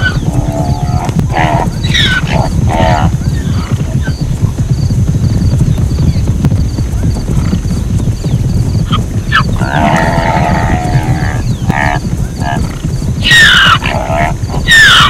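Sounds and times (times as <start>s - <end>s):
low rumble: 0.0s - 14.7s
zebra braying bark: 13.2s - 15.0s.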